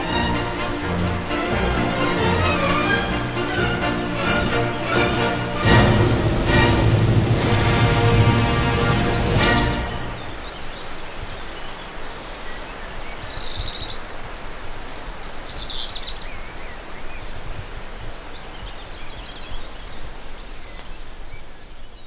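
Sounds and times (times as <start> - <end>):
steady rushing background noise: 0.0 - 13.4
small birds chirping: 8.5 - 22.0.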